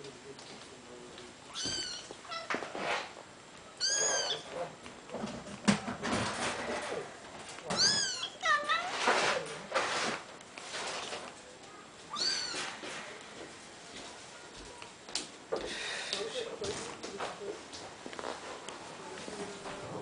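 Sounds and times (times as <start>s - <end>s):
kittens mewing: 1.5s - 2.7s, 3.8s - 4.8s, 7.6s - 9.0s, 12.1s - 12.8s.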